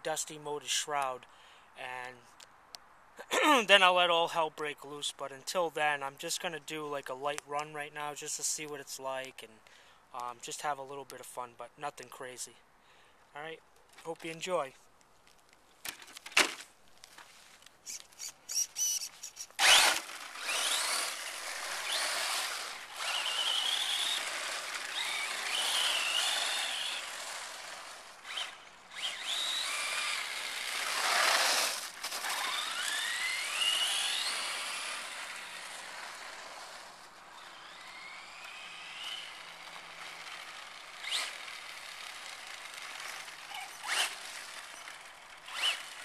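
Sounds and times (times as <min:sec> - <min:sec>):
electric motor whining: 0:17.9 - 0:46.0.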